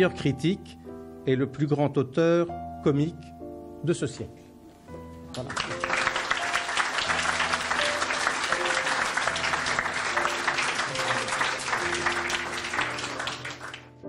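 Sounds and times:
soft background music: 0.0s - 14.0s
audience applauding: 5.3s - 14.0s.

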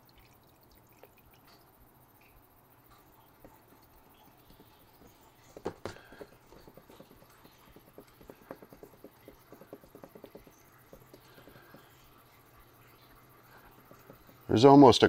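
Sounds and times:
oil dripping: 0.0s - 15.0s
knocks: 4.5s - 12.0s, 13.7s - 14.5s.

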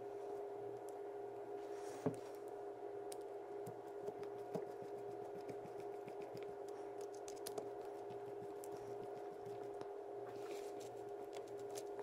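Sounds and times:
steady hum: 0.0s - 12.0s.

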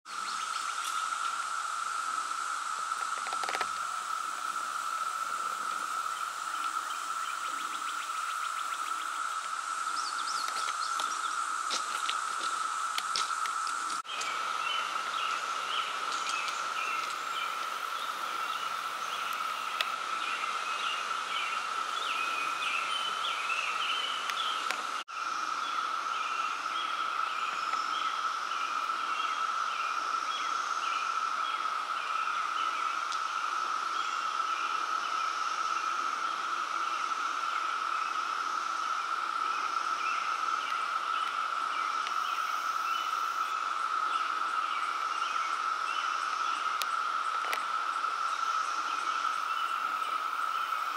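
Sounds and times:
high-pitched insect drone: 0.1s - 50.9s.

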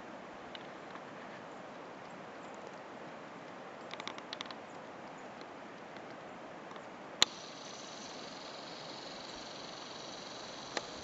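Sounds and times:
faint steady hiss: 0.0s - 11.0s
camcorder zoom motor whine: 7.2s - 11.0s.

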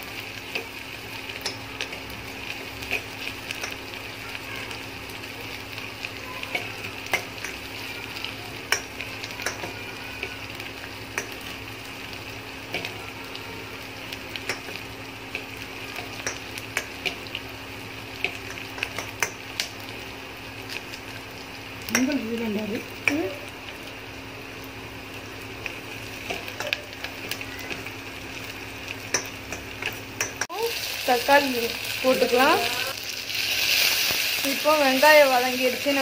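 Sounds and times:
shallots sizzling in oil: 0.0s - 36.0s.

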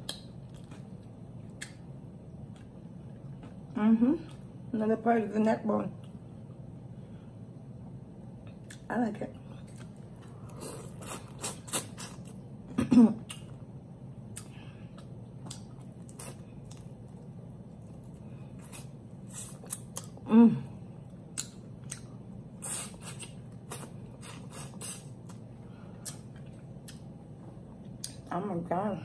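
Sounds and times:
lip smacking and wet clicks: 0.0s - 0.9s, 1.5s - 1.8s, 14.3s - 15.8s, 21.3s - 22.1s, 28.0s - 28.3s.

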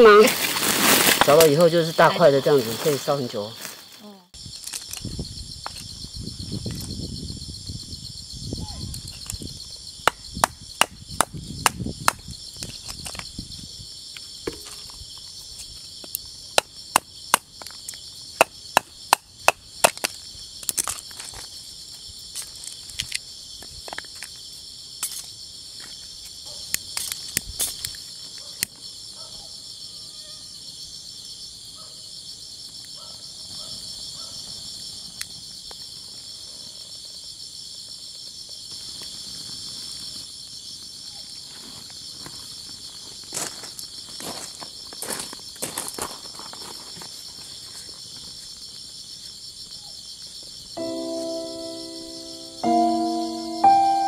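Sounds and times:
insects chirping: 0.0s - 54.0s
axe chopping firewood: 18.4s - 20.1s.

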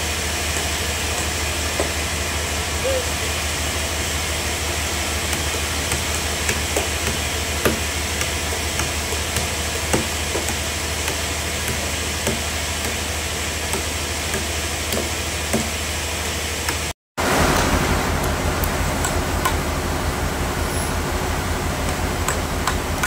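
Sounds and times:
low machine drone with hiss: 0.0s - 23.0s
hammer knocking on log: 5.3s - 13.0s.

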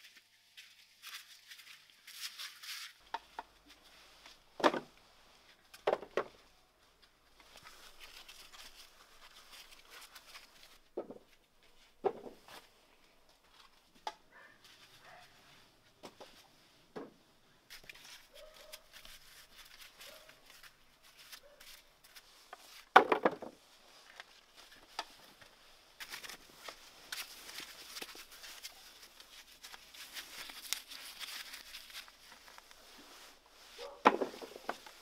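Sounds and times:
potatoes knocking into wooden crates: 4.6s - 4.9s, 22.9s - 23.6s, 33.9s - 34.9s.

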